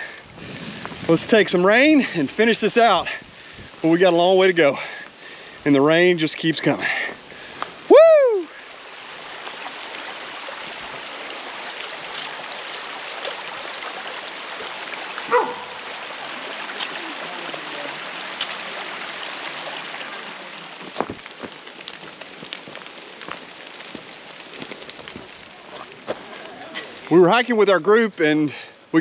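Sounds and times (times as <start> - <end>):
steady rain hiss: 0.0 - 29.0
raindrops tapping: 9.2 - 28.7.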